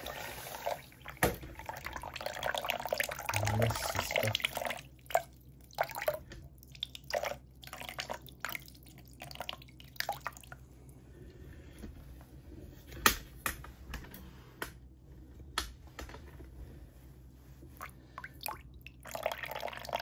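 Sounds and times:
water trickling from a hose: 0.0 - 10.6
water dripping and splashing: 0.9 - 10.6.

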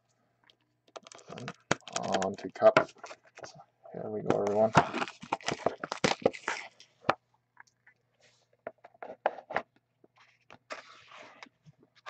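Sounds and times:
plastic shrink-wrap crackling and tearing: 4.8 - 6.8.

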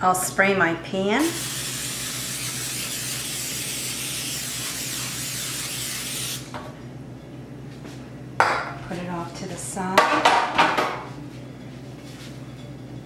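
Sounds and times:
aerosol spray hissing: 1.3 - 6.5.

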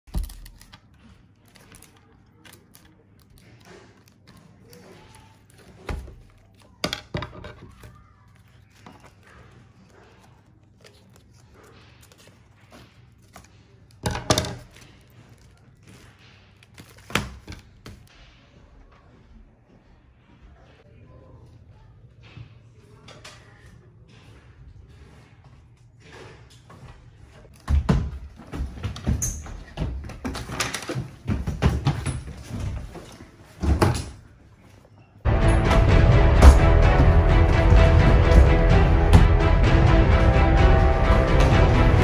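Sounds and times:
loud thumps: 35.3 - 42.0.

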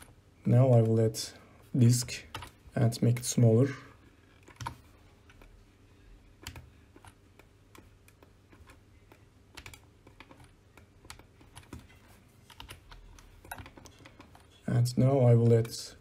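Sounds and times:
faint low hum: 0.0 - 16.0
keyboard and mouse clicks: 2.3 - 2.6, 4.4 - 5.6, 6.4 - 14.6.

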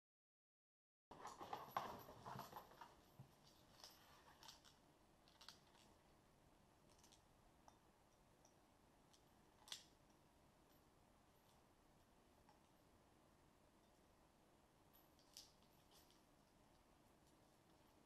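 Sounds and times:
small clicks: 3.4 - 6.0, 6.8 - 10.8.

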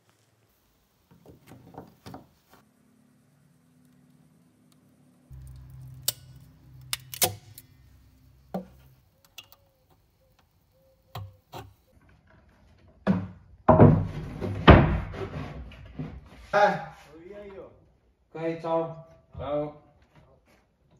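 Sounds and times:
low hum: 2.7 - 11.4
connectors clicking onto terminals: 5.3 - 11.9.

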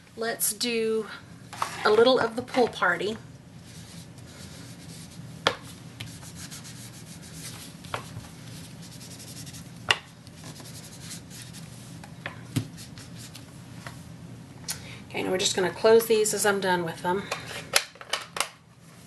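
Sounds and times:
sponge rubbing on cardstock: 3.6 - 5.2, 6.1 - 7.8, 8.5 - 9.7.

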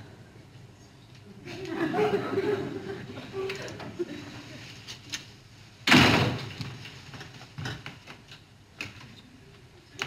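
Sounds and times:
door shutting with a bang: 5.9 - 6.5.

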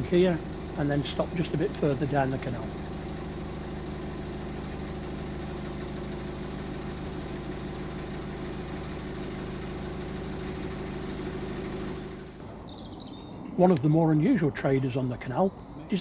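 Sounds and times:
diesel engine throbbing: 0.0 - 12.6.

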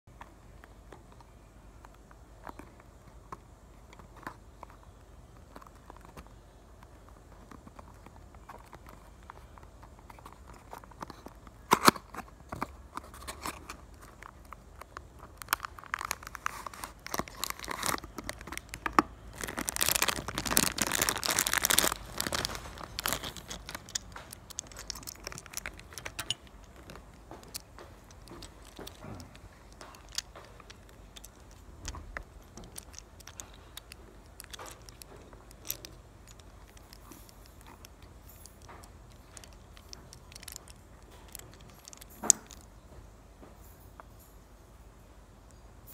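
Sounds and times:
cardboard box crinkling: 5.4 - 37.8.

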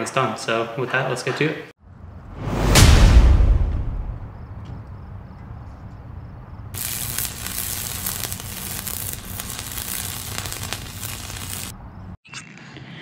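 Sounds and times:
low rumble: 1.8 - 4.6
crackling hiss of sparks: 6.8 - 11.8.

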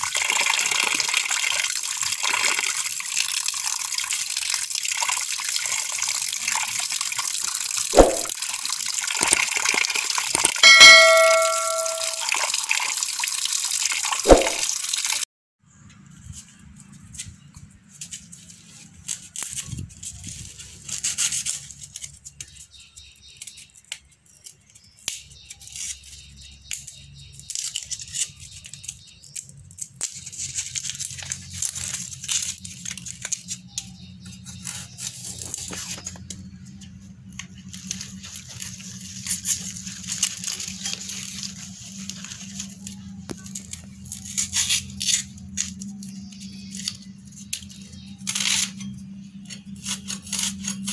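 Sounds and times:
onion skins crackling and tearing: 19.0 - 36.2, 37.6 - 48.8, 49.7 - 50.9.

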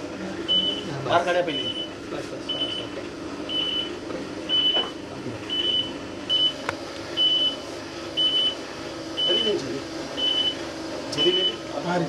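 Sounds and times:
medical monitor beeping: 0.5 - 2.9, 3.5 - 6.6, 7.2 - 9.6, 10.2 - 11.6.

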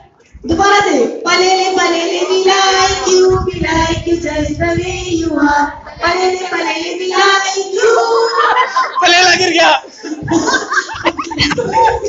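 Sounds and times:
women singing a chant in unison: 0.0 - 8.8
low thumps: 2.7 - 6.5.

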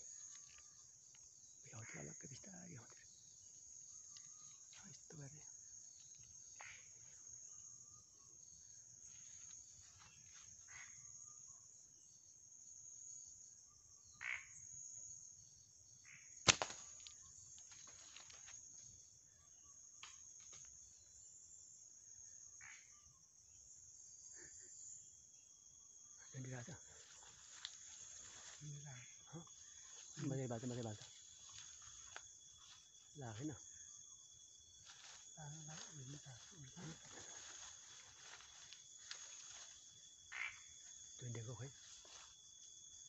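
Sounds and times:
crickets and insects chirring: 0.0 - 43.0
sharp snap: 16.4 - 17.1.

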